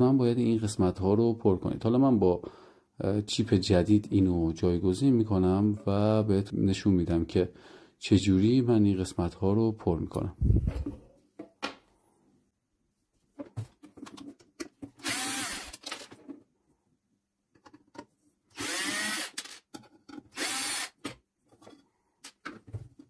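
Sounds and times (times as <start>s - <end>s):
electric screwdriver whining: 15.0s - 15.8s, 18.6s - 19.6s, 20.4s - 21.0s.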